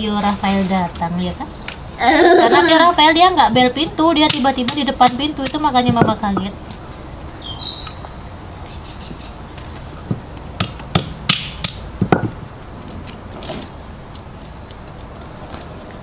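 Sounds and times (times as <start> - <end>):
hammer cracking nut shells: 10.6 - 12.4.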